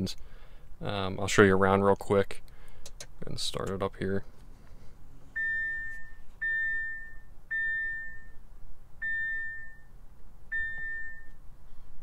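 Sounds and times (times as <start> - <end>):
dashboard warning chime: 5.3 - 8.4, 9.0 - 11.4.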